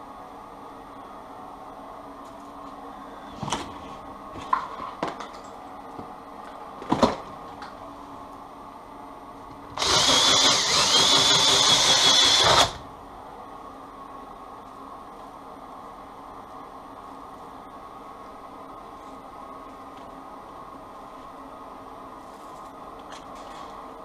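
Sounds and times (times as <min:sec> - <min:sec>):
cordless drill whining: 0:09.8 - 0:12.8.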